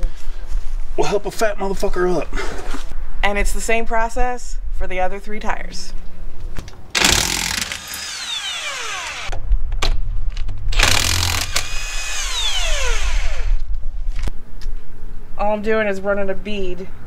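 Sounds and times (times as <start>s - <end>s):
impact wrench zipping lug nuts: 6.9s - 9.4s, 10.8s - 13.6s.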